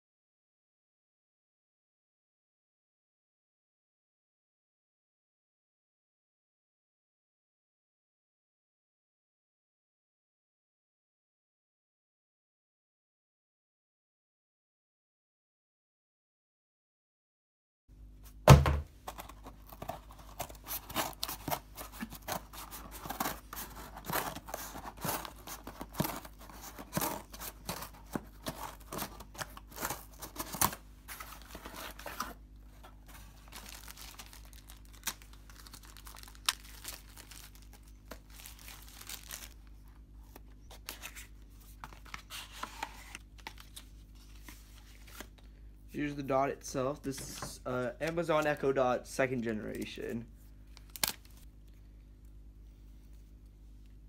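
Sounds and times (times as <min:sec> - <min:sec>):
box rustling: 0:18.5 - 0:39.6
cardboard box tearing: 0:18.6 - 0:39.6.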